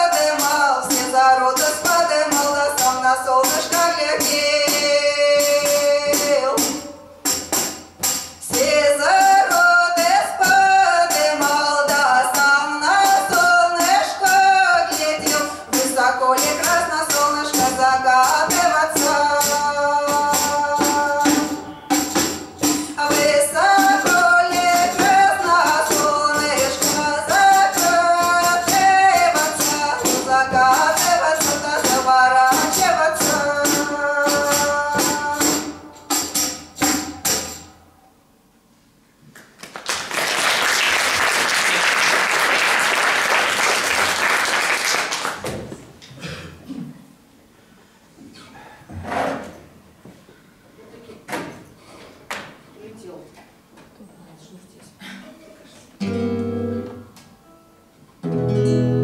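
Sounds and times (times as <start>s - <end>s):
women singing: 0.0s - 7.0s, 8.4s - 36.1s
frame drum with jingles: 0.1s - 37.8s
audience applauding: 39.4s - 45.5s.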